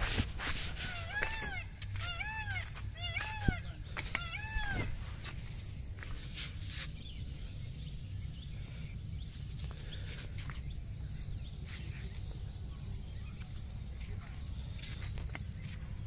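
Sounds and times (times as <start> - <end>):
animal calls rising and falling: 0.7 - 5.0.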